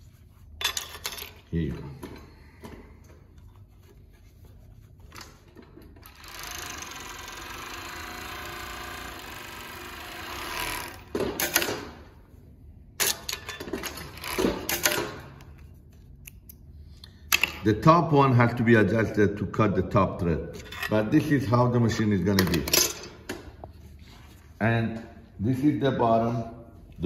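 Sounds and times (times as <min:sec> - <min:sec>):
industrial sewing machine running: 0:06.0 - 0:11.6.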